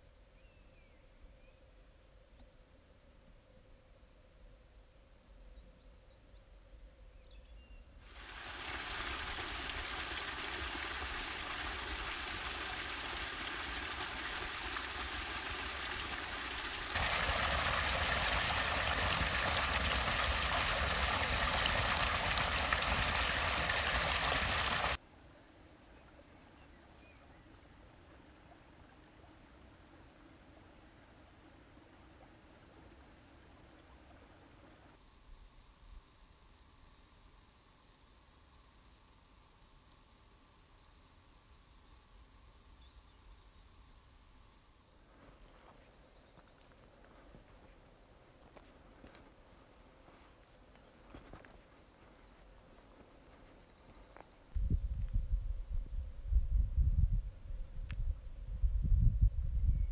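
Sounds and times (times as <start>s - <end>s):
faint bird chirps: 0.2s - 8.2s, 53.5s - 55.1s
fountain water splashing: 8.1s - 25.0s.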